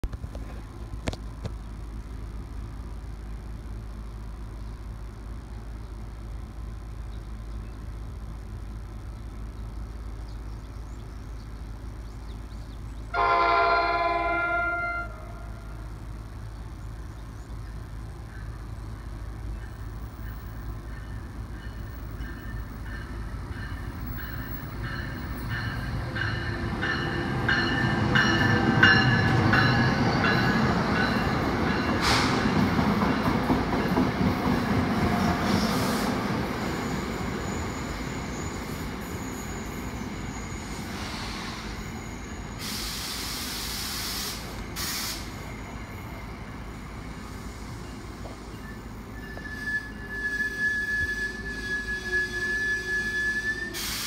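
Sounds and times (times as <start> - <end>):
train rumbling past: 0.0 - 54.0
air hiss: 32.0 - 32.5, 40.8 - 41.8, 42.6 - 45.4, 53.8 - 54.0
high brake squeal: 35.5 - 46.4, 47.0 - 54.0.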